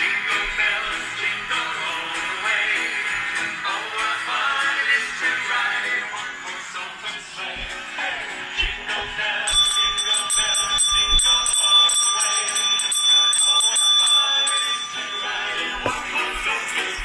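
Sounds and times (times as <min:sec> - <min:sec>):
hand bell ringing rapidly: 0:09.5 - 0:17.0.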